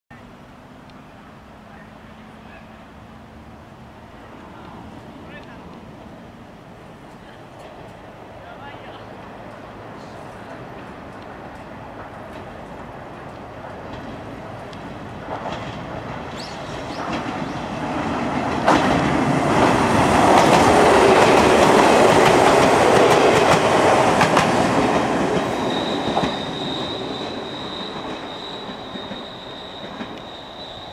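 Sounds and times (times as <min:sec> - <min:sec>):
electric train passing: 0:00.2 - 0:30.9
thin high squeal: 0:25.5 - 0:30.9.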